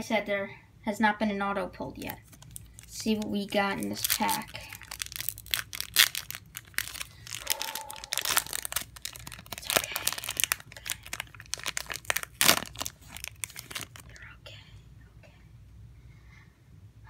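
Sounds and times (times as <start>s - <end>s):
foil wrapper crinkling: 2.0s - 14.2s.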